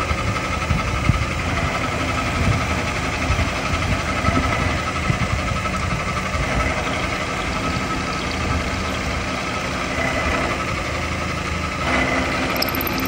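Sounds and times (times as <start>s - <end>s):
machine tool motor whine: 12.0s - 13.0s.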